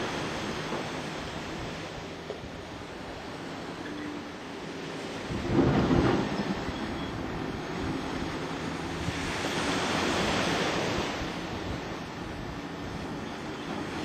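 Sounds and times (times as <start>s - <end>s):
sea waves washing: 0.0s - 14.0s
wind on microphone: 5.2s - 14.0s.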